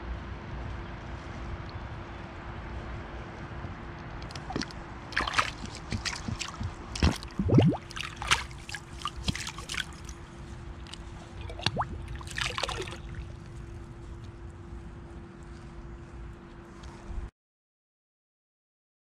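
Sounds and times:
bottle splashing in water: 4.3 - 10.1, 11.3 - 13.3
water gurgling in bottle: 4.3 - 10.1, 11.3 - 13.2.

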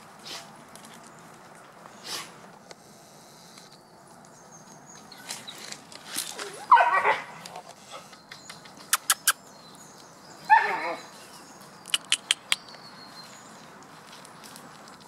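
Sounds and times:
puppy yelping: 6.4 - 7.3, 10.5 - 11.1.

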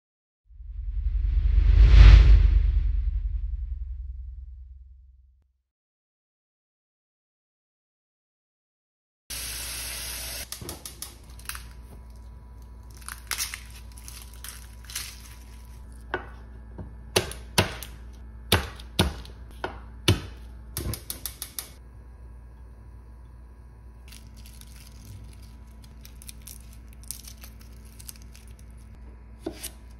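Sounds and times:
garlic skins crackling: 11.2 - 16.0, 24.1 - 29.0.

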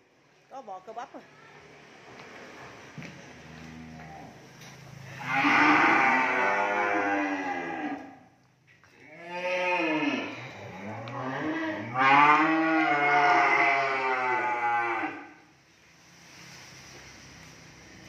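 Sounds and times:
cattle mooing: 5.1 - 8.2, 9.0 - 15.4.

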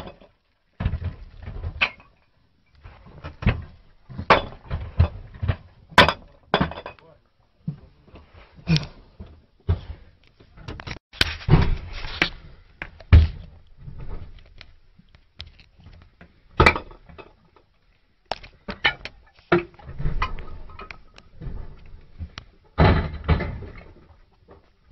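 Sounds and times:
heavy crates and shells thudding: 19.6 - 24.1.

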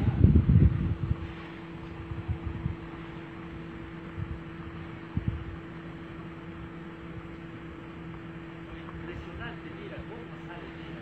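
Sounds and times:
constant low hum: 0.0 - 11.0
wind buffeting microphone: 0.0 - 11.0.

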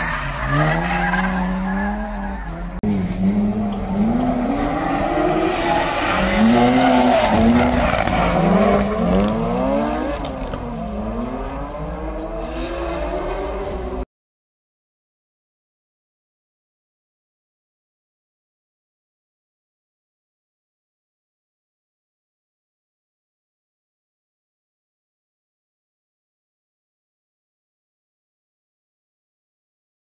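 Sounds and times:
tyre squeal and skidding: 0.0 - 2.8, 4.4 - 10.5
car engines revving hard: 0.0 - 14.0.

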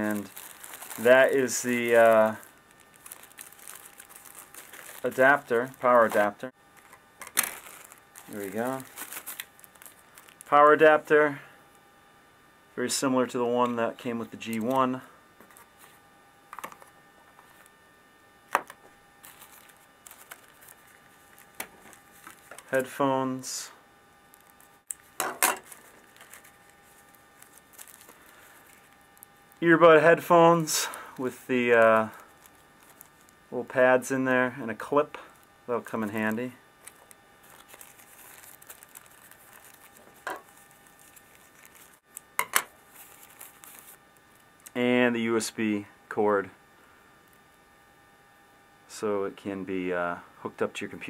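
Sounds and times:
cardboard rustling: 0.0 - 6.3, 7.3 - 10.5, 19.2 - 22.9, 25.5 - 28.9, 36.8 - 42.0.

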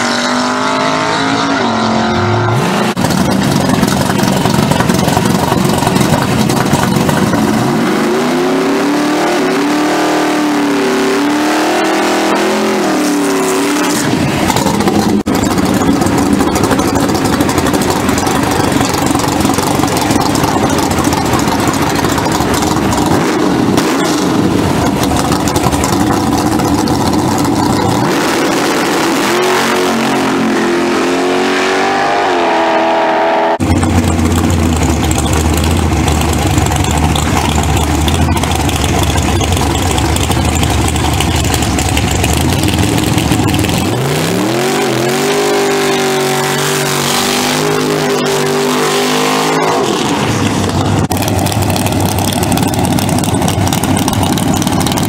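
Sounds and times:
car engine revving: 0.0 - 55.0
drag racing car accelerating: 0.0 - 55.0.

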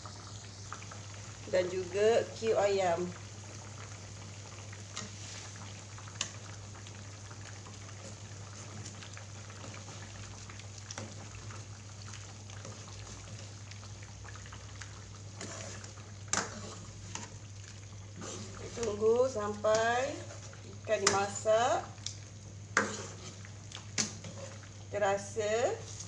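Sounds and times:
curry simmering and bubbling: 0.0 - 26.0
small pops and clicks: 22.0 - 22.2.

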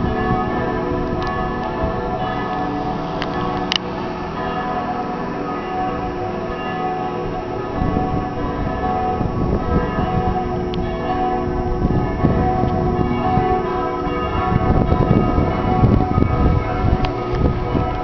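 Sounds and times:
church bells pealing: 0.0 - 18.0
uneven low rumble: 7.2 - 18.0.

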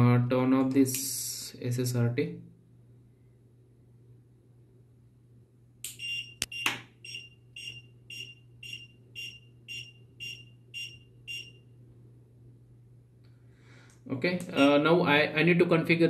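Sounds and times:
faint low hum: 0.0 - 16.0
buzzer beeping: 5.9 - 11.7.

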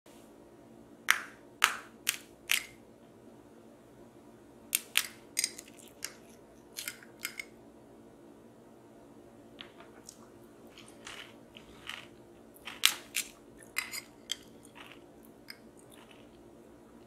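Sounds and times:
spoon cracking sugar crust: 4.8 - 7.5, 10.7 - 16.4.

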